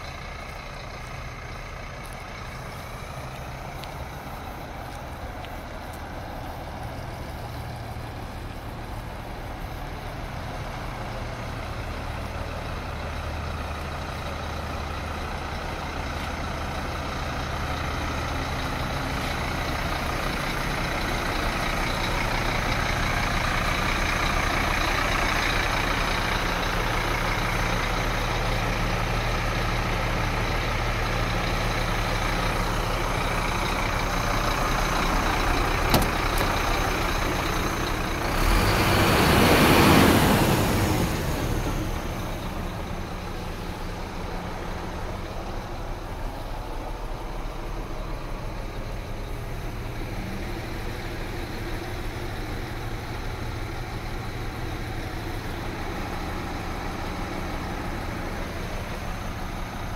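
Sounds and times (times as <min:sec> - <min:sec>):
diesel engine idling: 0:00.0 - 0:59.9.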